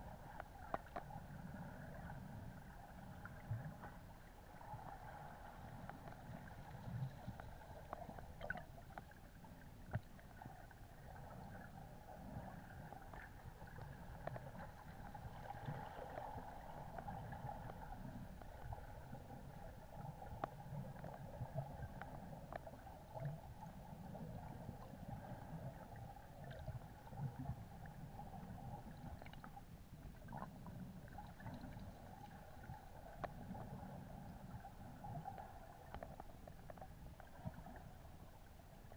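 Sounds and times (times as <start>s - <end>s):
underwater rumble of moving water: 0.0s - 38.9s
faint clicks: 0.3s - 1.1s, 5.8s - 9.2s, 33.1s - 33.6s, 35.2s - 37.8s.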